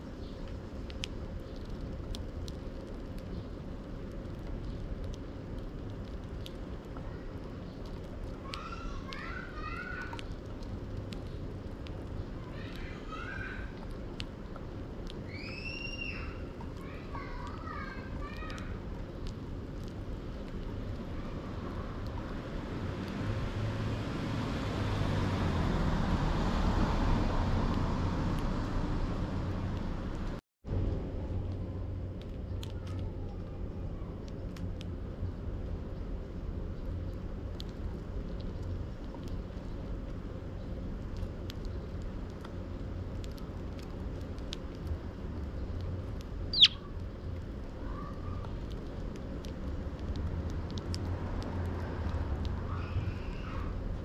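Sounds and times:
steady low rumble: 0.0s - 15.6s, 16.2s - 54.0s
birds pecking seed on wood: 0.1s - 23.5s, 32.1s - 54.0s
car passing: 21.4s - 30.4s.

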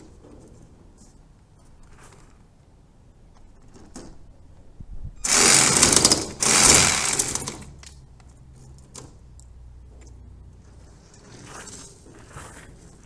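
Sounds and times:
power saw cutting: 5.2s - 7.7s.

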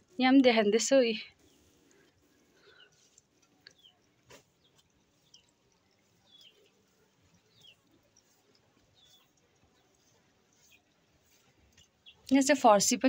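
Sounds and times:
bird chirping: 2.6s - 12.3s.

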